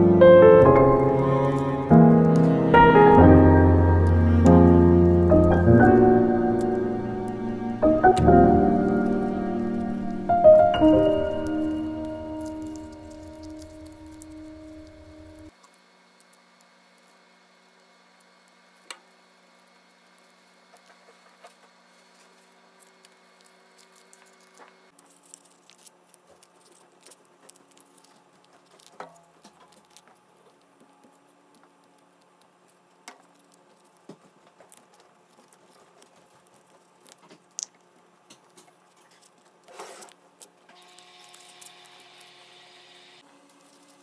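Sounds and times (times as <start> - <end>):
low steady hum: 0.0 - 15.6.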